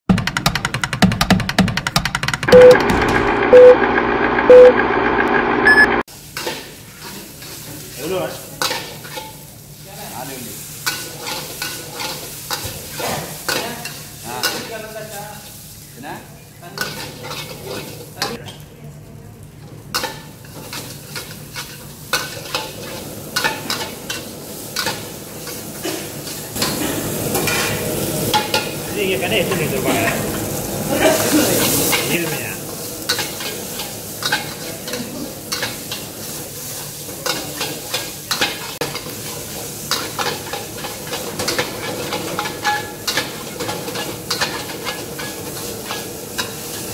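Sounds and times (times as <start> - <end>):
short countdown beeps: 2.5 - 2.8, 3.5 - 3.8, 4.5 - 4.8, 5.7 - 5.9
rice sizzling: 2.6 - 46.9.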